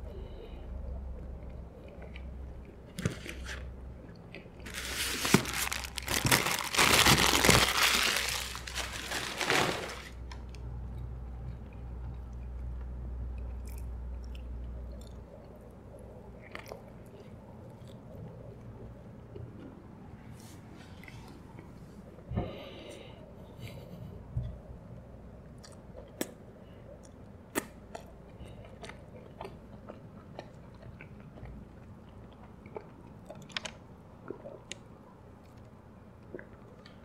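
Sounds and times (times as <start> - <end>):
close chewing: 1.1 - 19.7, 25.5 - 37.0
paper wrapper crinkling: 4.6 - 10.4.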